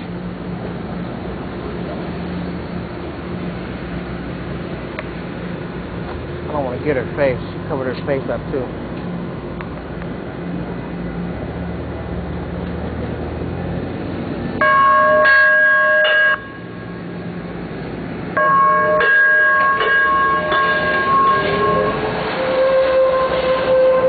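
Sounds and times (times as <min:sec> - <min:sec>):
rising whine: 0:00.0 - 0:24.0
train hum: 0:00.0 - 0:24.0
train horn blasts: 0:18.4 - 0:24.0.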